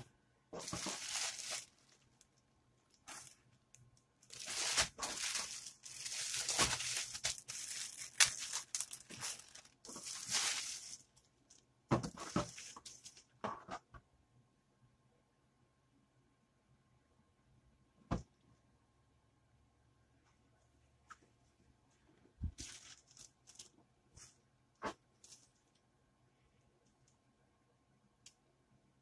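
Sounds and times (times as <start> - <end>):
plastic bag crinkling: 0.6 - 11.6, 22.5 - 23.8.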